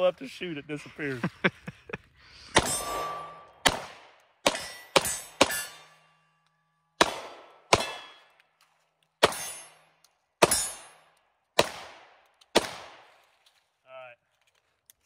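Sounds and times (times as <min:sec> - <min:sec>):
pistol shots: 0:03.6 - 0:05.9, 0:07.0 - 0:08.3, 0:09.2 - 0:09.8, 0:10.4 - 0:11.0, 0:11.6 - 0:13.1.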